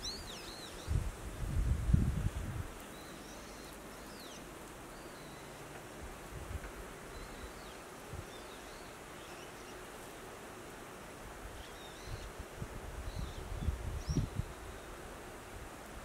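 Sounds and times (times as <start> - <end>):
small birds chirping: 0.0 - 1.1, 2.7 - 5.8, 7.0 - 10.4, 11.5 - 12.4, 13.0 - 15.6.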